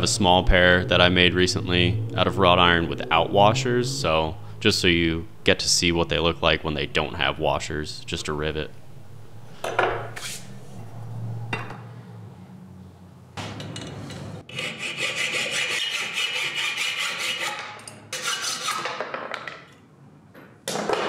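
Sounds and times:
hacksaw cutting metal: 0:14.5 - 0:19.0.

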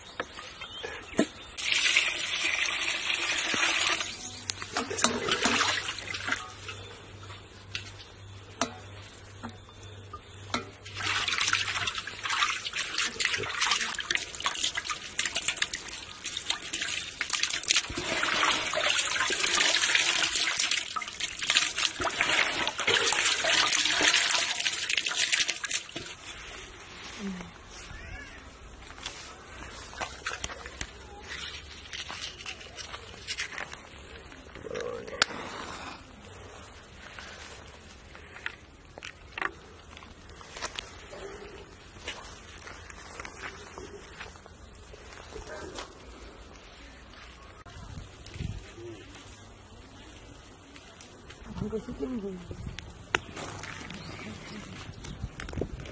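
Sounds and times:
water sloshing and splashing: 0:01.6 - 0:06.8, 0:10.5 - 0:26.5.

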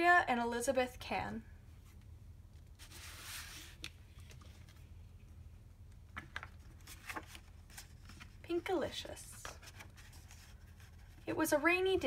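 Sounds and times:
book cover swishing: 0:02.8 - 0:03.9.

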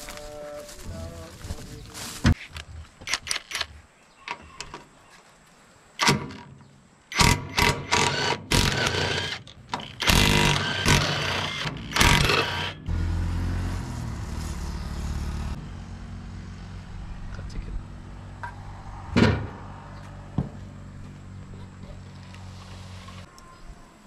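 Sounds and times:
cordless impact wrench: 0:07.1 - 0:12.8.

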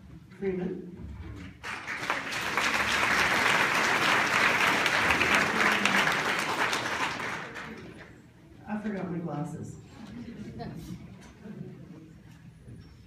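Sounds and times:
audience applauding: 0:01.6 - 0:08.2.

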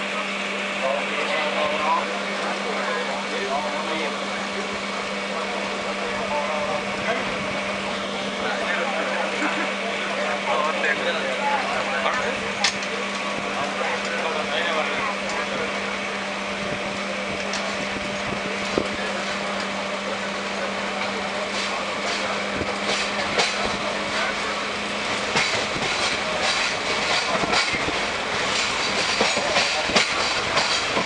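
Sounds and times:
train running noise: 0:00.0 - 0:31.0
wheels clacking over rails: 0:08.4 - 0:31.0.

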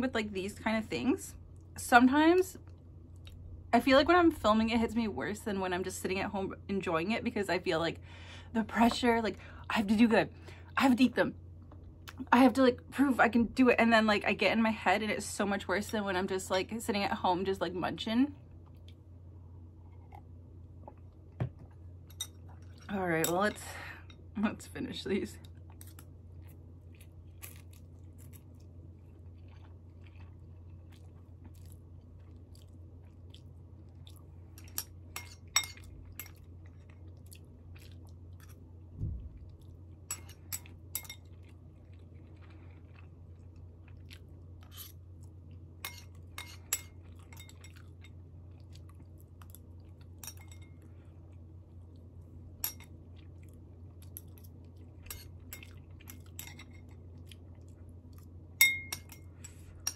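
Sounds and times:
steady low hum: 0:00.0 - 0:59.9
person chewing noodles: 0:25.6 - 0:34.7, 0:35.8 - 0:38.8, 0:39.5 - 0:45.6.

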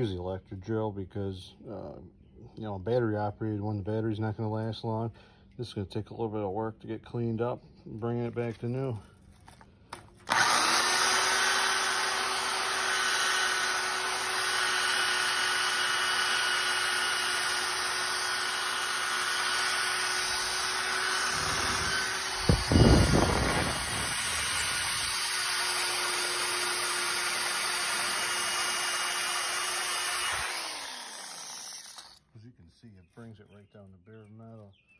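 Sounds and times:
electric drill motor whine: 0:10.2 - 0:32.2.

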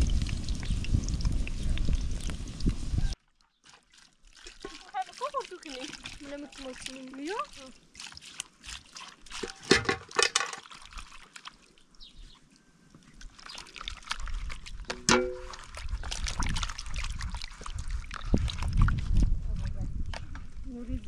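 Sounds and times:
water pouring and splashing: 0:00.0 - 0:20.1
hands swishing in water: 0:03.6 - 0:09.8, 0:13.1 - 0:19.3.

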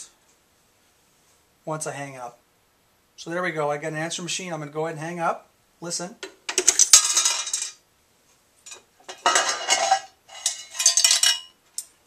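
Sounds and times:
metallic coin clinking: 0:06.6 - 0:07.8.

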